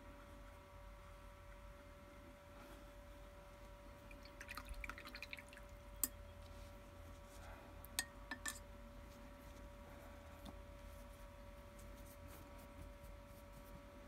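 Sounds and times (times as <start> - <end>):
faint hum: 0.0 - 14.0
water dripping and splashing: 4.1 - 5.7.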